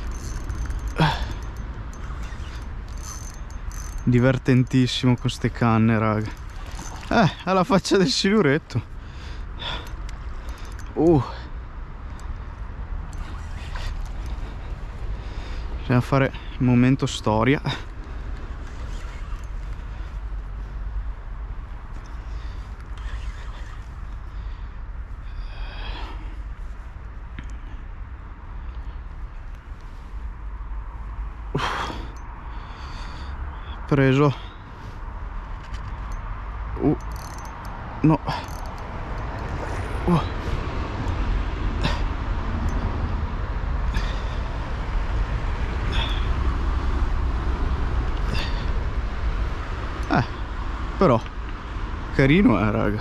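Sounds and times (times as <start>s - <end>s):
steady low rumble: 0.0s - 18.6s
low rumbling background noise: 0.0s - 53.0s.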